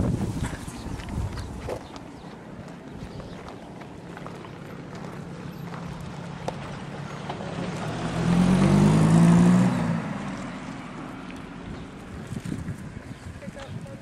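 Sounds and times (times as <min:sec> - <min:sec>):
vehicle engine driving past: 0:03.9 - 0:13.1.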